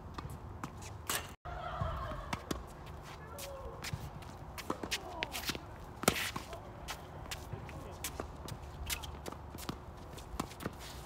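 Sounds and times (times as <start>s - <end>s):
tennis balls struck and bouncing: 0.0s - 10.9s
footsteps on hard court: 2.3s - 11.0s
faint shoe squeaks: 8.8s - 9.4s.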